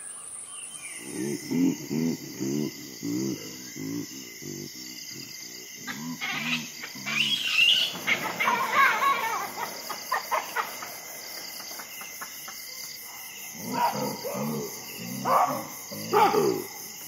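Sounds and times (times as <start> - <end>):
birds chirping and warbling: 0.0 - 16.9
insects trilling: 0.0 - 17.0
repeated low calls: 1.0 - 11.5.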